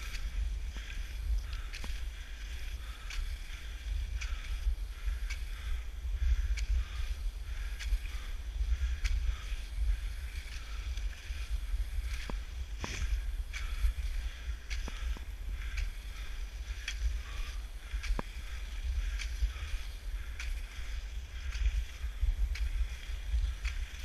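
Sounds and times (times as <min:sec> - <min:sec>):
skis swishing on snow tracks: 0:00.0 - 0:24.0
wind rumble on microphone: 0:00.0 - 0:24.0
ski poles clicking: 0:00.1 - 0:05.7, 0:12.1 - 0:24.0.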